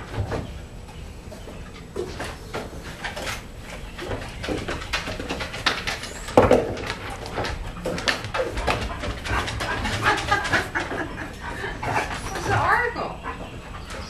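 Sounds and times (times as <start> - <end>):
footsteps on wooden deck: 0.0 - 14.0
dog claws clicking on wood: 2.0 - 11.1.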